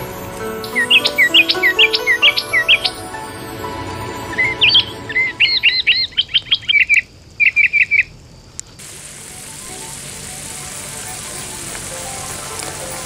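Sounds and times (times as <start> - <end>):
songbird chirping: 0.0 - 13.0
sauce sizzling in a wok: 8.8 - 13.0.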